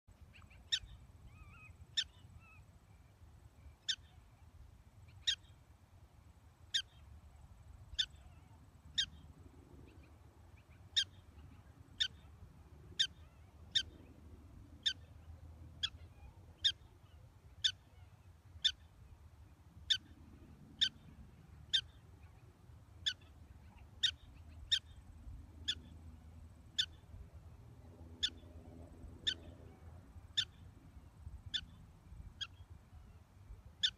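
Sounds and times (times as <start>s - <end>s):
prairie dog chirping: 25.7s - 25.9s, 26.8s - 27.0s, 30.3s - 30.6s.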